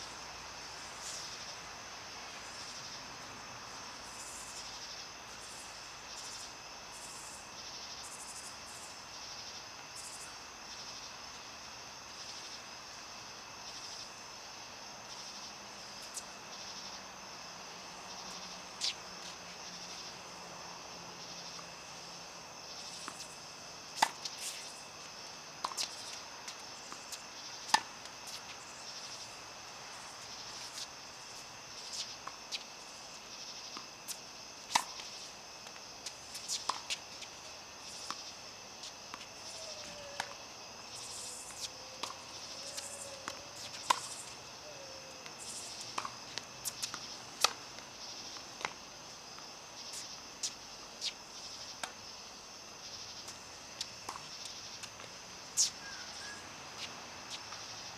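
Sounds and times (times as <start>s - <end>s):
insects droning: 0.0s - 57.9s
tennis balls struck by rackets: 23.0s - 24.6s, 41.5s - 44.4s, 45.2s - 47.8s
tennis balls bouncing on court: 25.6s - 28.5s, 34.7s - 40.4s, 41.4s - 44.4s, 45.2s - 48.8s.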